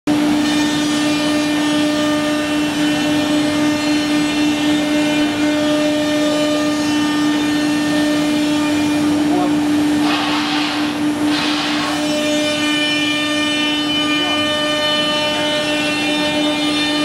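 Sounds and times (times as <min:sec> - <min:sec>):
router spindle hum: 0:00.3 - 0:17.0.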